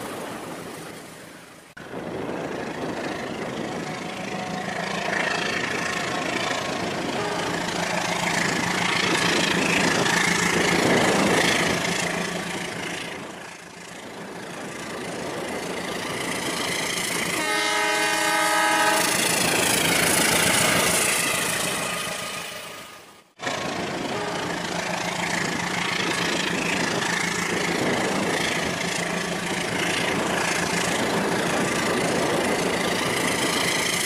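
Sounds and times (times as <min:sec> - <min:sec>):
toy train horn: 0:07.2 - 0:07.6, 0:17.4 - 0:19.2, 0:24.1 - 0:24.5.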